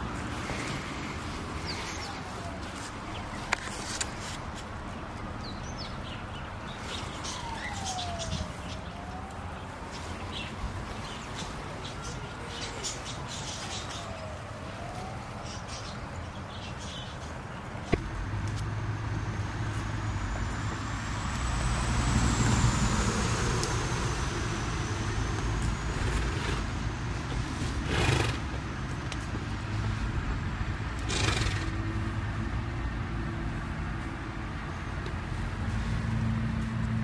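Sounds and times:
helicopter flying overhead: 7.2s - 9.1s, 18.0s - 28.5s.

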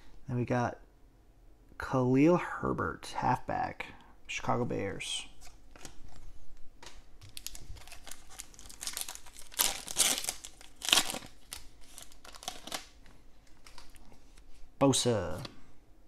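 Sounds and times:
foil wrapper crinkling: 5.4s - 14.5s.

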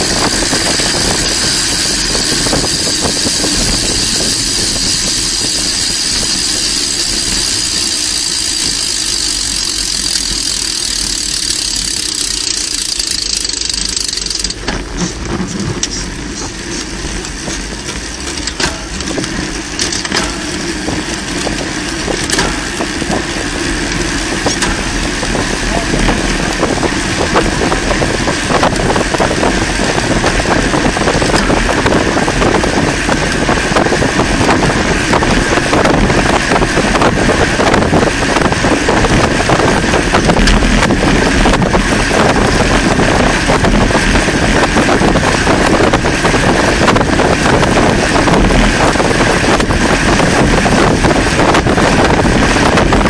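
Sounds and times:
wind on microphone: 0.0s - 7.8s, 20.6s - 53.0s
bicycle tyre and road noise: 0.0s - 53.0s.

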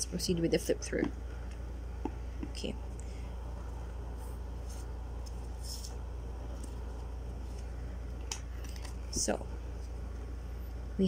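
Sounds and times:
steady low hum: 0.0s - 11.0s
playing cards sliding: 4.2s - 7.7s.

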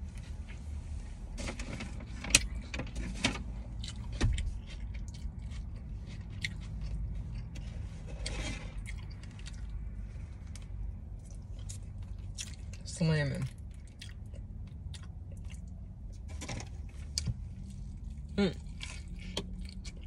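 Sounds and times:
steady low hum: 0.0s - 20.0s
wet chewing: 3.8s - 12.8s, 13.4s - 16.3s, 16.9s - 20.0s.

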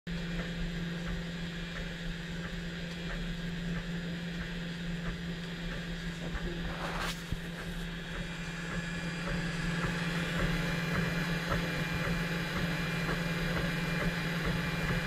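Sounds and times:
printer motors and fan humming: 0.1s - 15.0s.

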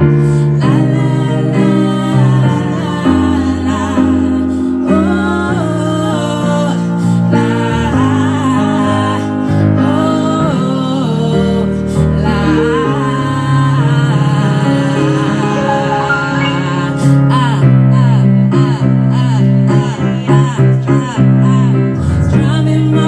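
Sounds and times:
two women singing: 0.0s - 23.0s
electronic keyboard chords: 12.3s - 18.7s.

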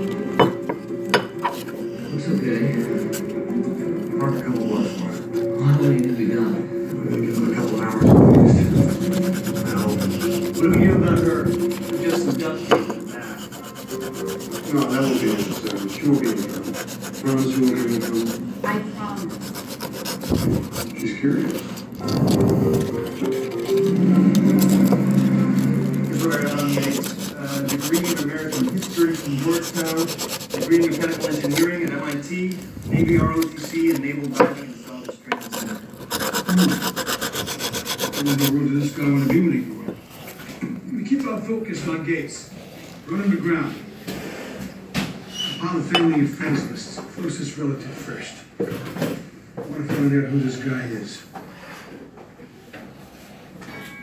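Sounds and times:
sandpaper scraping metal tubing: 7.1s - 39.2s.

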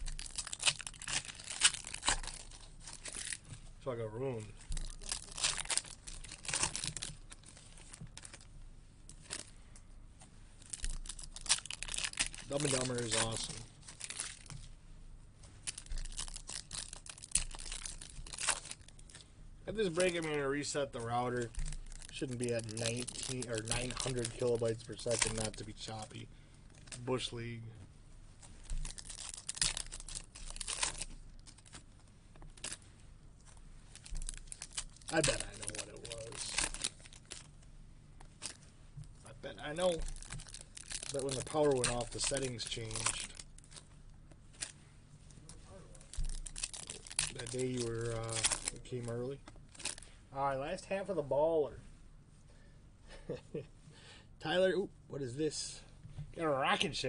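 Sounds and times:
foil wrapper crinkling and tearing: 0.0s - 3.6s, 4.6s - 8.5s, 9.1s - 9.6s, 10.6s - 14.7s, 15.6s - 27.4s, 28.6s - 37.6s, 38.2s - 38.6s, 39.5s - 43.9s, 44.5s - 44.8s, 45.9s - 50.1s.

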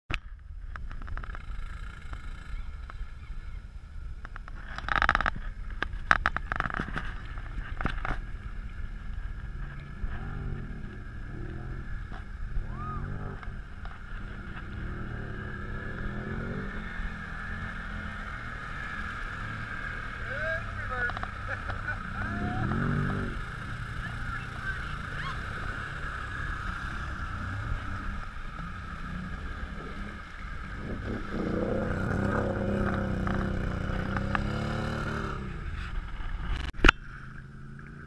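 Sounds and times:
vehicle engines running: 0.1s - 38.0s
wind buffeting microphone: 22.0s - 37.1s.

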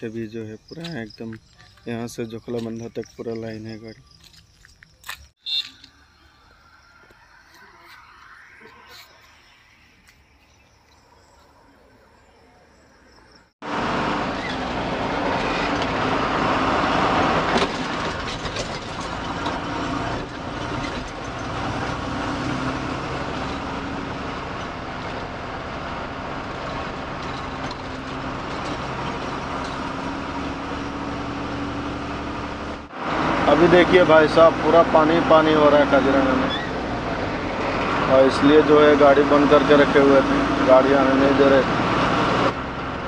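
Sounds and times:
road and tyre noise: 0.0s - 43.0s
truck engine running: 13.6s - 43.0s.

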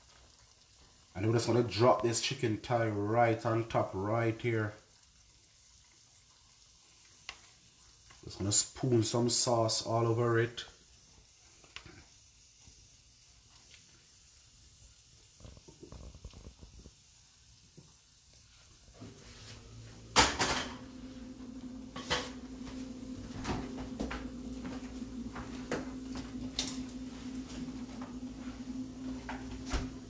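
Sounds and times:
steady low hum: 19.0s - 30.0s.

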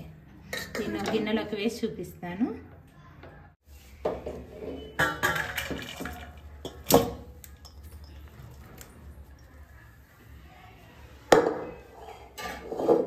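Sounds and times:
pot clattering against plate: 4.1s - 8.2s.

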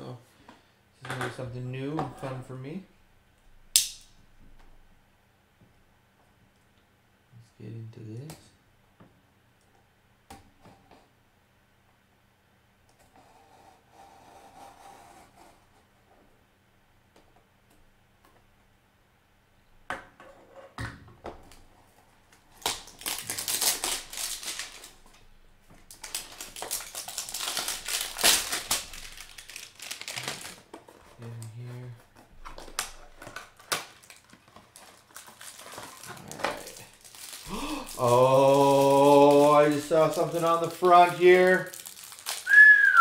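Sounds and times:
plastic wrap crinkling and tearing: 22.3s - 25.2s, 25.8s - 31.4s, 32.4s - 43.0s.

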